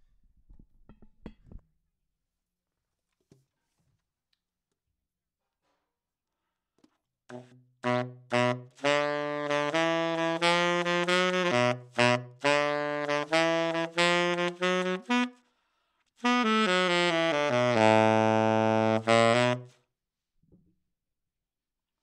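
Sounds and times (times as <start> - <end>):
tenor saxophone playing low notes: 7.3 - 15.4, 16.2 - 19.8.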